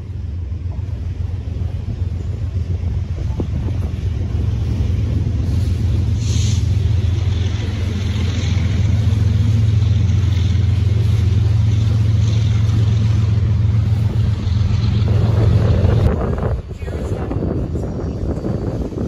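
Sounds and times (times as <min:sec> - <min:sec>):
low engine rumble: 0:00.0 - 0:19.0
high hiss: 0:05.5 - 0:07.0.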